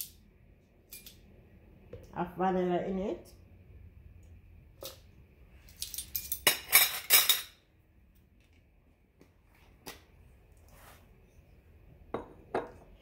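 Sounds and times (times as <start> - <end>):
spoon and bottle clattering: 5.7 - 7.6.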